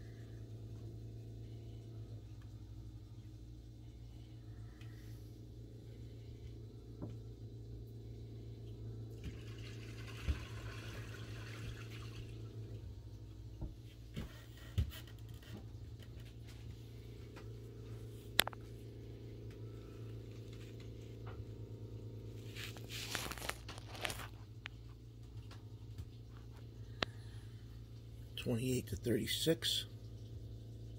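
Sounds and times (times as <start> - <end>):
steady low hum: 0.0 - 30.9
soft plastic rustle: 22.4 - 25.4.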